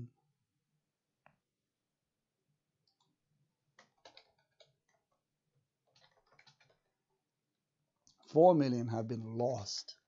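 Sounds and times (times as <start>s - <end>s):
computer keyboard keystrokes: 3.8s - 5.1s, 5.9s - 6.8s.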